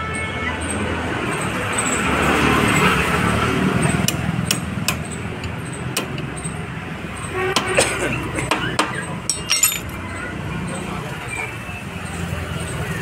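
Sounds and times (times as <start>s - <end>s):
road traffic rumble: 0.0s - 13.0s
vehicle horn toot: 7.3s - 8.1s
metal tools clicking: 8.8s - 10.0s.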